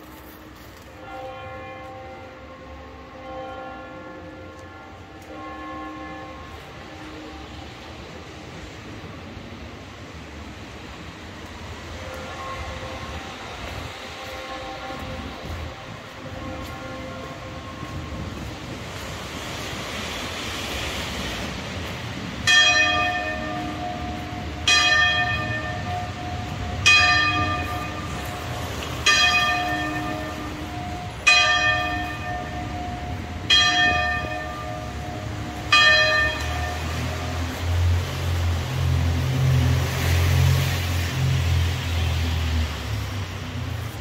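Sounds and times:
traffic noise: 0.0s - 44.0s
large tower bell ringing: 0.8s - 8.2s, 22.4s - 37.7s.

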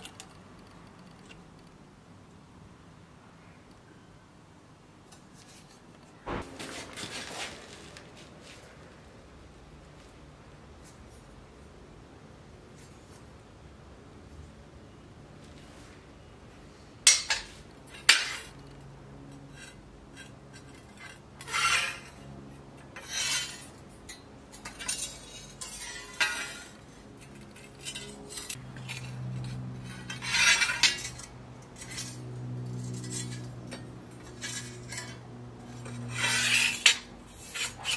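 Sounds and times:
steady low hum: 6.1s - 12.5s
metal clinking and scraping: 22.9s - 37.9s.

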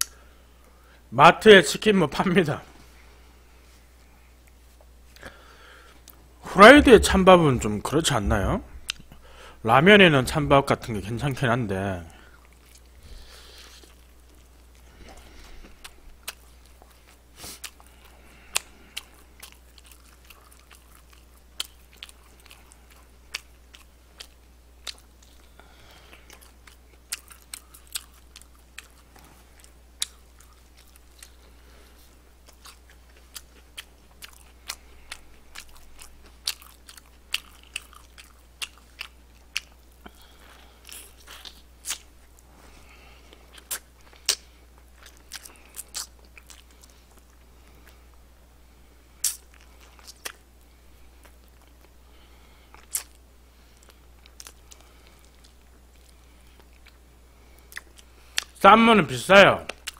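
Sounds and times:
faint low hum: 0.0s - 59.9s
crunching fried chicken: 12.2s - 48.0s, 52.7s - 57.0s
chewing: 12.2s - 48.2s, 49.2s - 58.6s, 59.7s - 59.9s.

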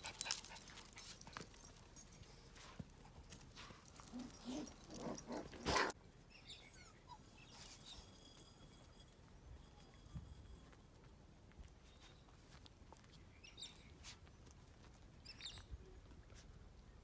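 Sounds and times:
puppies whimpering and yipping: 4.0s - 8.2s.

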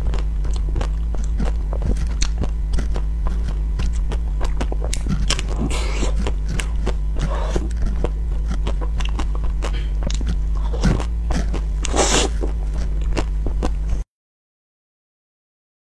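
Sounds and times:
chewing crunches: 0.0s - 14.0s
steady low hum: 0.0s - 14.0s.

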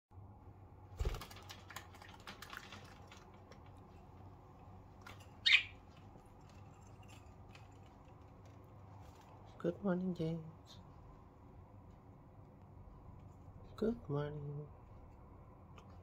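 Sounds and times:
budgie chirp: 5.4s - 5.8s.

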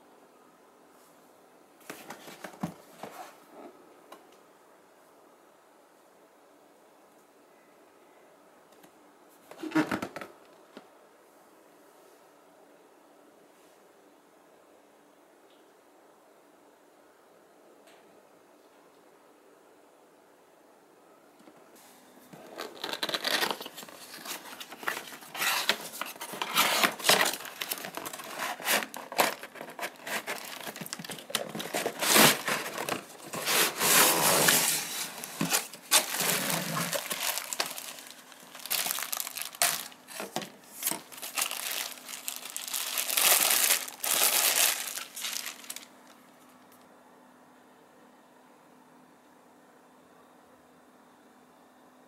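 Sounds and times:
plastic wrap crinkling: 22.4s - 46.2s.

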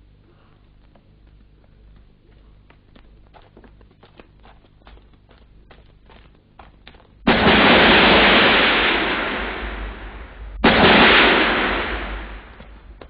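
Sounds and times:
explosions rumbling: 7.2s - 13.0s.

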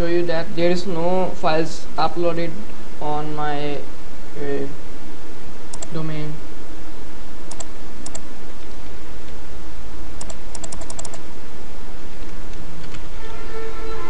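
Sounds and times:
steady hiss and low hum: 0.0s - 14.0s
keyboard typing: 5.7s - 6.0s, 7.5s - 8.3s, 10.2s - 11.3s.

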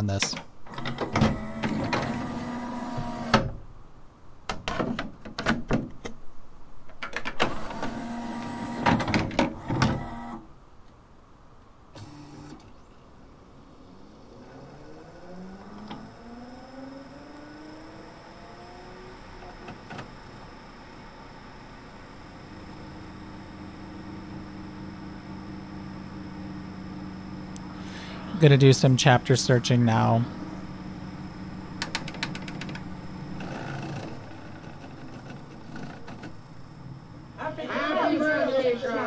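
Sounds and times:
disc tray motor whirring: 0.0s - 5.2s, 6.9s - 10.6s, 11.8s - 39.0s
spindle motor rising whine: 0.6s - 4.4s, 7.4s - 10.7s, 11.8s - 39.0s
mechanism clicks: 31.8s - 36.4s.

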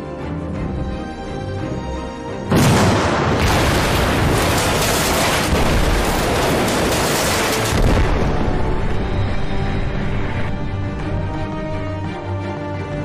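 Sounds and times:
music: 0.0s - 13.0s
long rumbling explosion: 2.5s - 10.8s.

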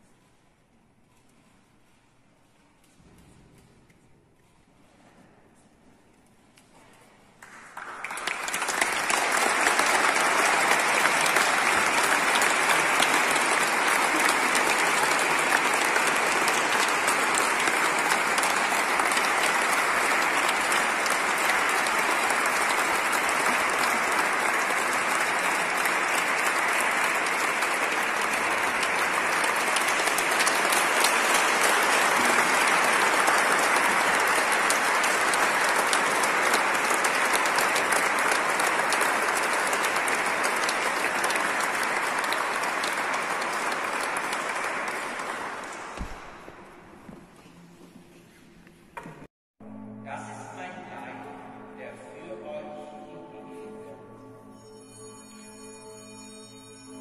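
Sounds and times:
congregation applauding: 7.3s - 47.6s, 54.6s - 57.0s.

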